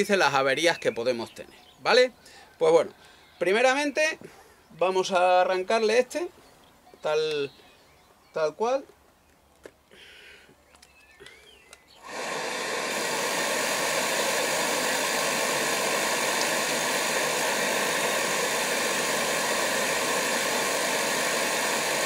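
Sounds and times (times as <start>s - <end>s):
oil burner fan whirring hum: 11.8s - 22.0s.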